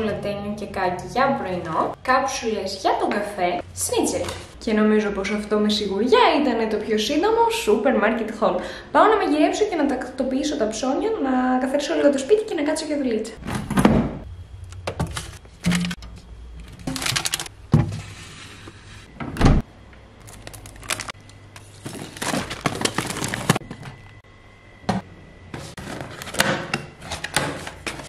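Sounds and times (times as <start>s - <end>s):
groceries knocking and clunking: 13.4s - 19.6s, 20.2s - 24.2s, 24.8s - 28.0s
packaging rustling: 16.6s - 17.5s, 20.2s - 24.0s.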